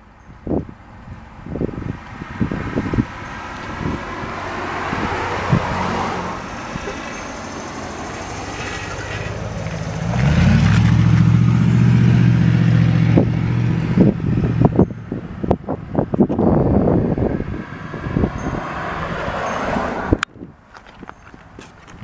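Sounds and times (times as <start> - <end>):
vehicle engine low hum: 0.0 - 22.0
car passing: 1.5 - 20.2.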